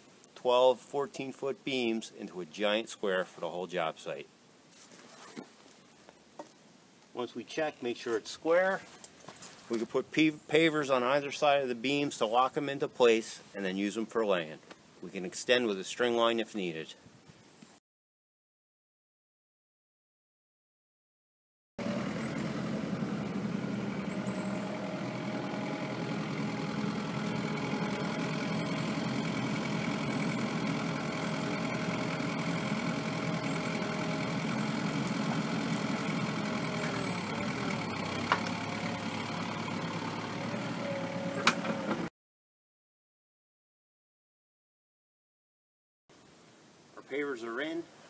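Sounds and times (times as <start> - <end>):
excavator diesel engine running: 21.8 - 42.1.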